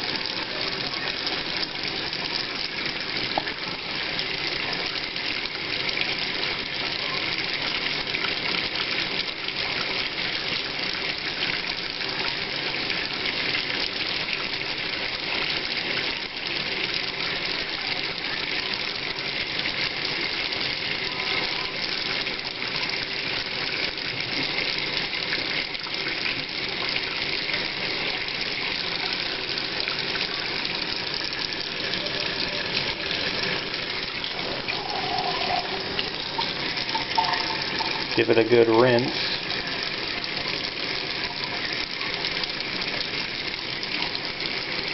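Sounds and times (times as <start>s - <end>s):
tap running into sink: 3.3s - 3.6s, 34.0s - 39.2s
water splashing into sink: 20.5s - 44.9s.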